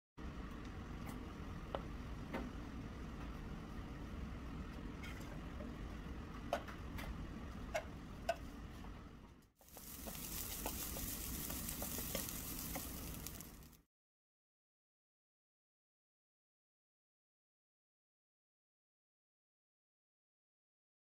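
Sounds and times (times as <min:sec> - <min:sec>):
rice sizzling in hot oil: 0:09.6 - 0:13.8
wooden spatula scraping wok: 0:09.6 - 0:13.8.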